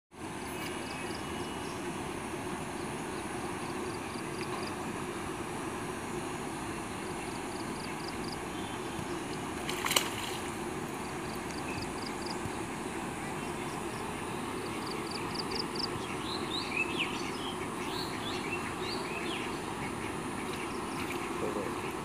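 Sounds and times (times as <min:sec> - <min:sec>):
outdoor background rumble: 0:00.2 - 0:22.0
splash in pond: 0:09.6 - 0:10.6.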